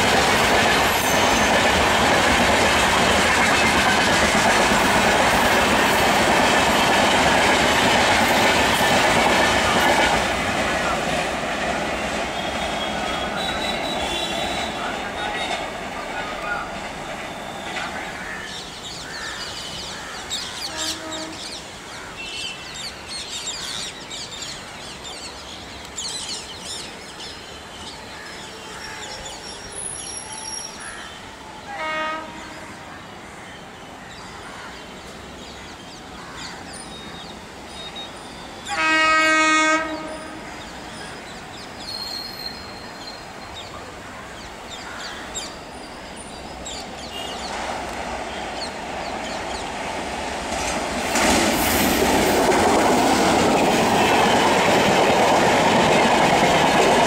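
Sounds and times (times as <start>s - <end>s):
approaching train noise: 0.0s - 57.0s
locomotive air horn: 20.7s - 21.4s, 31.6s - 32.8s, 38.6s - 40.4s.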